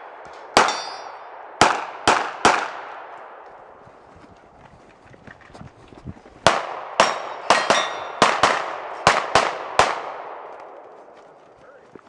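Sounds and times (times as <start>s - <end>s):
pistol shots: 0.0s - 3.4s, 6.4s - 10.8s
steel targets ringing: 0.6s - 1.3s, 7.0s - 8.2s.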